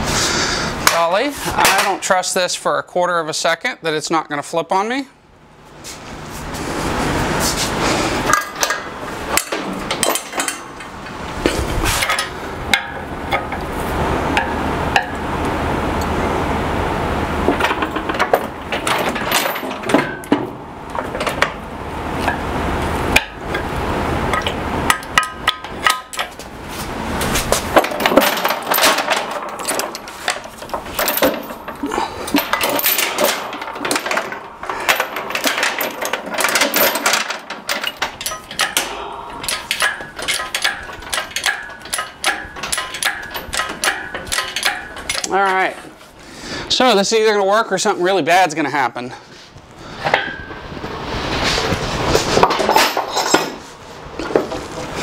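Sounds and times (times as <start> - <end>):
metal clanks and knocks: 8.3 - 13.6, 14.4 - 15.2, 17.5 - 21.6, 24.3 - 26.5, 27.2 - 46.0, 50.0 - 50.6, 52.1 - 53.6, 54.2 - 55.0
jack being pumped: 27.2 - 45.9
chain clinking: 27.8 - 45.3.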